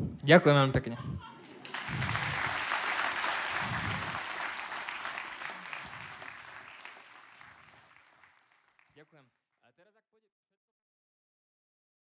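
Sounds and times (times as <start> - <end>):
audience applauding: 1.4 - 9.2.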